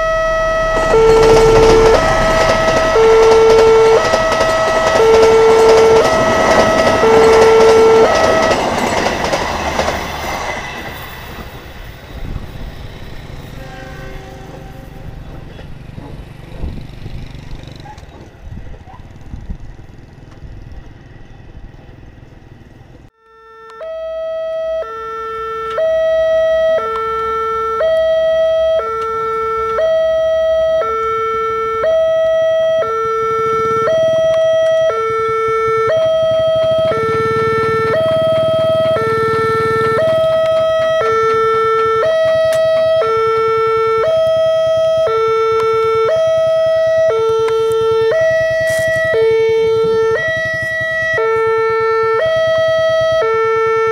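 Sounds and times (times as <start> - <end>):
level crossing two-tone alarm: 0.0 - 10.4, 23.2 - 53.9
train passing: 0.0 - 23.1, 24.5 - 53.9.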